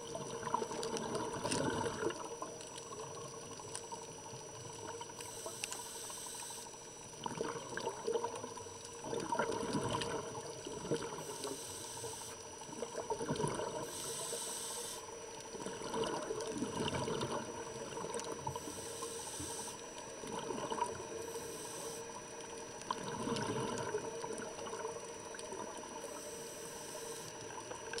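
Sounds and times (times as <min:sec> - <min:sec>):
exhaled bubbles rushing: 0:00.0 - 0:05.2, 0:07.2 - 0:11.2, 0:12.6 - 0:13.9, 0:15.5 - 0:18.6, 0:20.2 - 0:21.2, 0:22.7 - 0:26.0
diver breathing through regulator: 0:11.2 - 0:12.4, 0:13.8 - 0:15.1, 0:18.5 - 0:19.8, 0:21.2 - 0:22.1.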